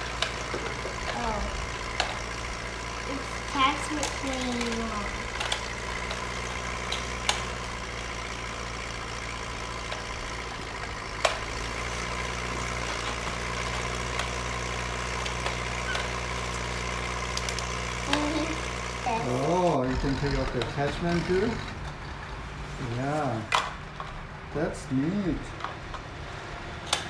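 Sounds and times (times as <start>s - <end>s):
low engine-like hum: 0.0s - 27.0s
plastic toys clicking together: 3.1s - 7.8s.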